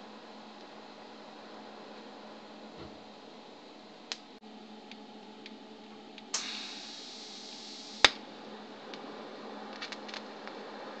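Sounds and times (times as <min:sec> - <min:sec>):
faint steady hum: 0:00.0 - 0:11.0
welding torch hiss: 0:06.3 - 0:08.2
sharp loud snap: 0:08.0 - 0:08.2.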